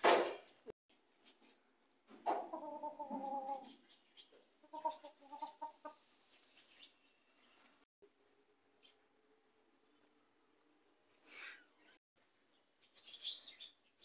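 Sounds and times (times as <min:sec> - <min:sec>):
chickens clucking: 0:01.3 - 0:06.4.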